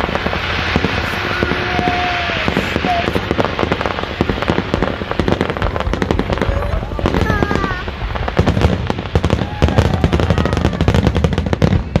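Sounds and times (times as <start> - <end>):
fireworks popping and banging: 0.0 - 12.0.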